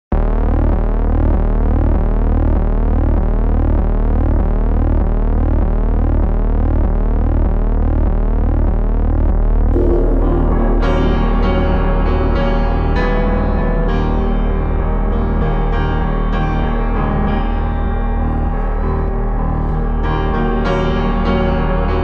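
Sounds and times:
pulsing electronic drone: 0:00.1 - 0:22.0
sweeping synth tones: 0:09.7 - 0:15.8
piano music: 0:09.8 - 0:22.0.

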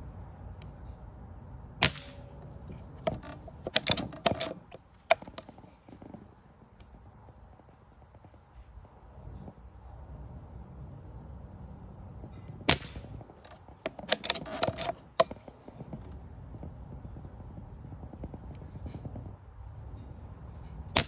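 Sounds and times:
pellet rifle firing: 0:01.8 - 0:05.5, 0:12.7 - 0:15.4
rifle clicks: 0:01.8 - 0:05.7, 0:12.7 - 0:15.7.

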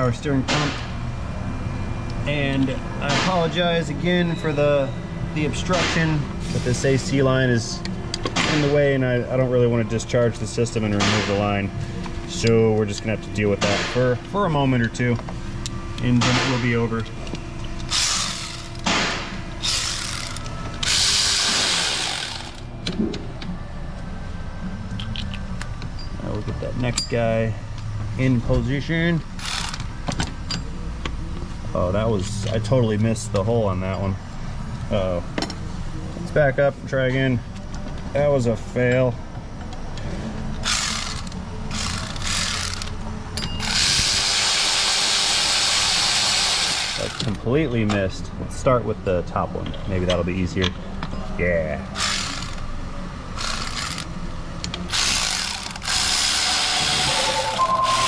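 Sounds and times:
electric ratchet running: 0:17.8 - 0:18.8, 0:19.6 - 0:22.7, 0:29.4 - 0:29.9, 0:40.6 - 0:43.0, 0:43.6 - 0:47.4, 0:52.0 - 0:52.7, 0:53.4 - 0:54.1, 0:54.8 - 0:57.6.

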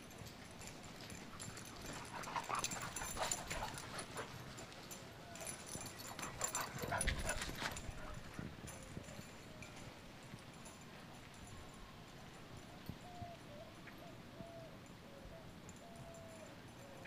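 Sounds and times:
dogs yipping and whimpering: 0:01.4 - 0:09.9.

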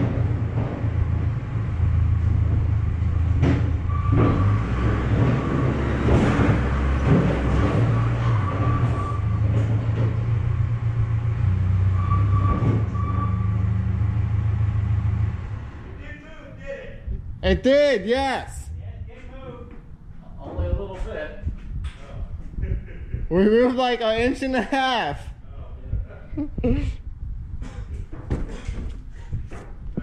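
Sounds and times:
metal knocks and clanks: 0:00.0 - 0:10.8, 0:12.1 - 0:13.2, 0:27.6 - 0:30.0
thin squeal: 0:11.9 - 0:13.6.

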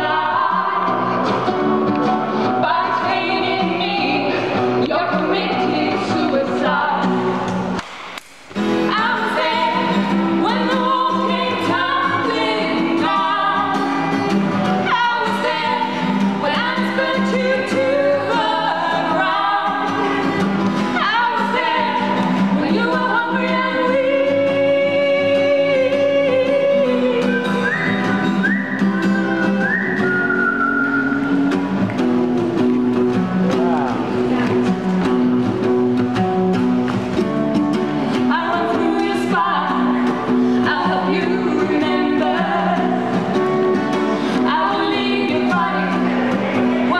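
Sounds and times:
women singing together: 0:00.0 - 0:01.3, 0:02.5 - 0:07.5, 0:08.9 - 0:28.4, 0:38.2 - 0:46.9
strummed acoustic guitar: 0:00.0 - 0:46.9.

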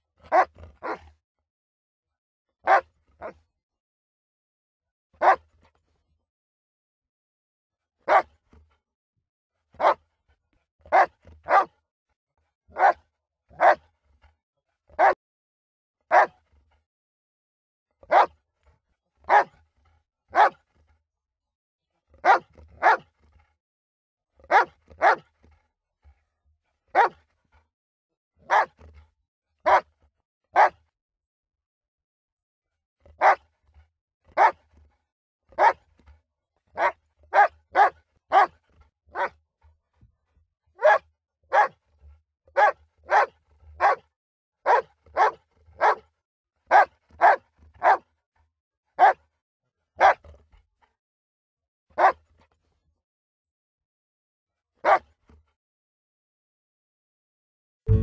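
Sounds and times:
dog barking: 0:00.2 - 0:01.1, 0:02.6 - 0:03.4, 0:05.2 - 0:05.5, 0:08.0 - 0:08.4, 0:09.8 - 0:10.0, 0:10.8 - 0:11.7, 0:12.7 - 0:13.8, 0:14.9 - 0:15.2, 0:16.1 - 0:16.4, 0:18.0 - 0:18.4, 0:19.3 - 0:19.6, 0:20.3 - 0:20.6, 0:22.2 - 0:23.1, 0:24.5 - 0:25.3, 0:26.9 - 0:27.2, 0:28.4 - 0:28.8, 0:29.6 - 0:29.9, 0:30.6 - 0:30.9, 0:33.1 - 0:33.4, 0:34.3 - 0:34.6, 0:35.6 - 0:35.9, 0:36.7 - 0:39.4, 0:40.8 - 0:41.8, 0:42.6 - 0:46.1, 0:46.7 - 0:48.1, 0:49.0 - 0:49.2, 0:50.0 - 0:50.3, 0:52.0 - 0:52.2, 0:54.8 - 0:55.1.

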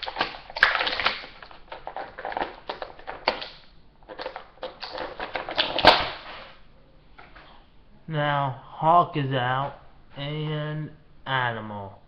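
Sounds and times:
packaging crinkling and rustling: 0:00.0 - 0:06.6.

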